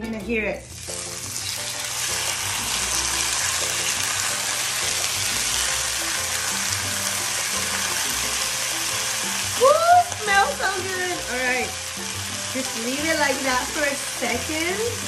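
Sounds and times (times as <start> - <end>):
chicken sizzling in a skillet: 0.6 - 15.0.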